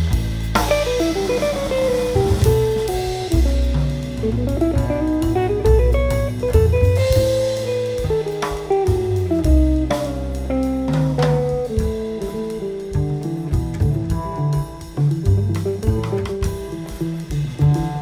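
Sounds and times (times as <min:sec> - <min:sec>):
acoustic bass: 0:00.0 - 0:18.0
drum kit with cymbals: 0:00.0 - 0:18.0
jazz guitar melody: 0:00.0 - 0:18.0.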